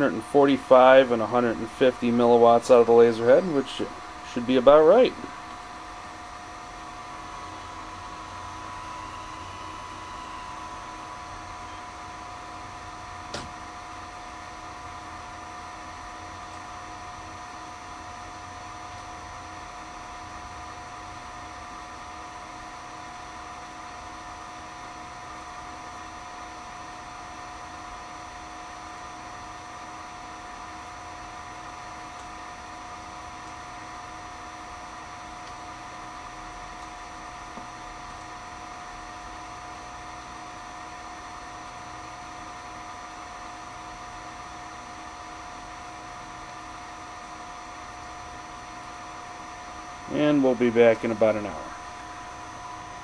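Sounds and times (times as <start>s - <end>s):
equipment hum and hiss: 0.0s - 53.0s
high whining tones: 0.7s - 13.0s, 51.1s - 53.0s.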